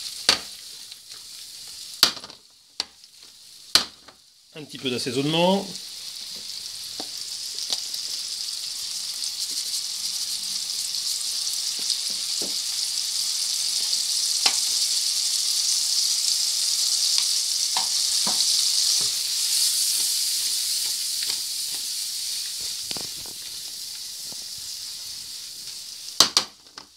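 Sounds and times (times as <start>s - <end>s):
small pops and crackles: 0.0s - 4.3s, 6.2s - 8.2s, 13.8s - 14.9s, 17.1s - 19.2s, 20.8s - 24.7s, 25.6s - 26.9s
mushrooms sizzling in frying pan: 0.0s - 26.9s.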